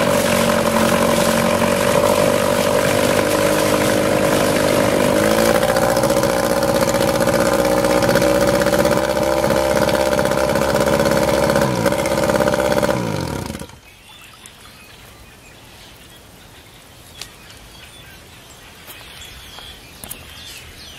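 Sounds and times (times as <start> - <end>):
outboard motor winding down: 0.0 - 14.0
outboard motor running: 0.0 - 14.1.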